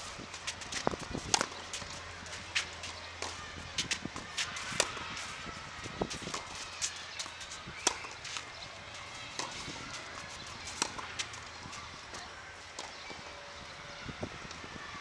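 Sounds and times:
footsteps on clay: 0:00.2 - 0:12.2
racket hitting tennis ball: 0:00.4 - 0:05.4, 0:06.0 - 0:13.2
ball bouncing: 0:00.6 - 0:05.0.

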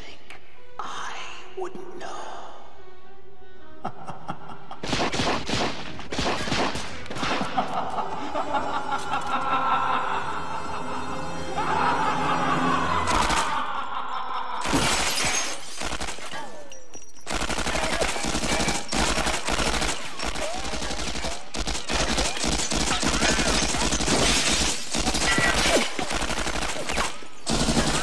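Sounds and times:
glass breaking: 0:14.6 - 0:15.8
submachine gun firing bursts: 0:15.6 - 0:16.5, 0:17.2 - 0:28.0.

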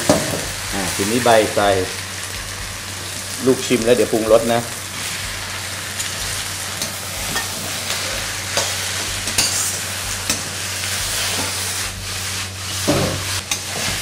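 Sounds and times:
food sizzling in a wok: 0:00.0 - 0:14.0
metal spatula scraping a wok: 0:06.0 - 0:14.0.

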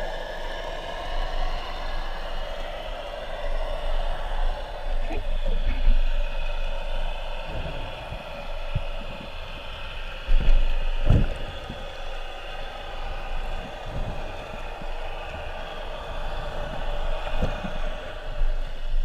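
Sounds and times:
muffled underwater hum: 0:00.0 - 0:19.0
low dull thumps: 0:05.1 - 0:18.0.

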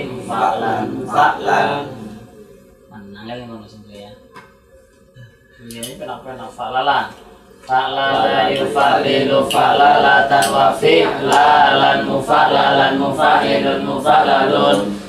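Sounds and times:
men chanting together: 0:00.0 - 0:02.5, 0:07.7 - 0:15.0.

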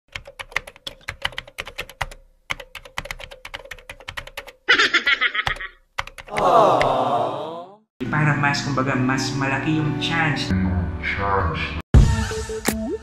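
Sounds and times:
keyboard typing clicks: 0:00.1 - 0:04.6, 0:05.4 - 0:06.5.

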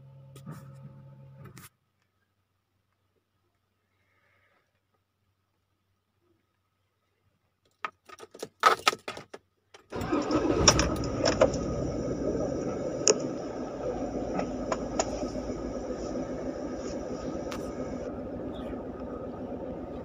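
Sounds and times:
car engine starting and idling: 0:09.9 - 0:20.0
key clicking in ignition: 0:10.0 - 0:13.6.

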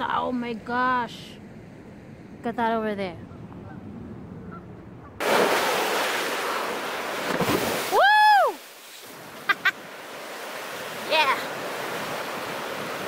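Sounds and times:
wind: 0:00.0 - 0:13.0
goose honking: 0:03.2 - 0:05.2
waves breaking on shore: 0:05.2 - 0:13.0.

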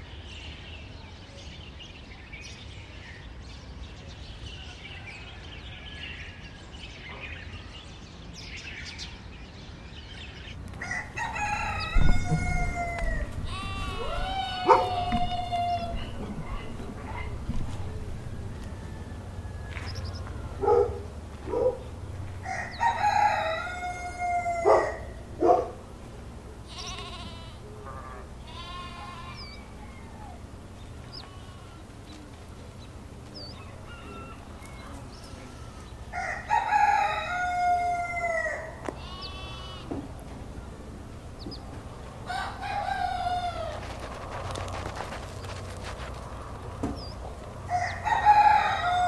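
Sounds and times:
rooster crowing: 0:10.7 - 0:21.1, 0:22.2 - 0:25.2, 0:33.4 - 0:39.8, 0:42.2 - 0:44.8, 0:47.6 - 0:49.0
rooster clucking: 0:10.8 - 0:20.9.

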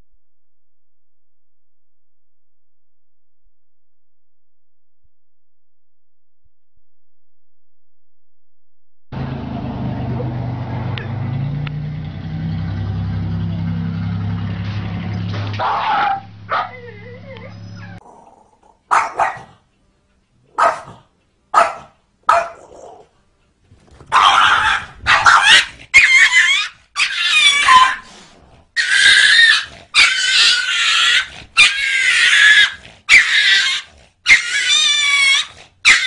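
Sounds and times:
dog barking: 0:15.6 - 0:16.8, 0:18.9 - 0:19.6, 0:20.5 - 0:23.0, 0:24.1 - 0:28.1, 0:35.3 - 0:36.0
dog crying wavering: 0:15.6 - 0:18.0, 0:24.1 - 0:28.1, 0:28.8 - 0:36.0.

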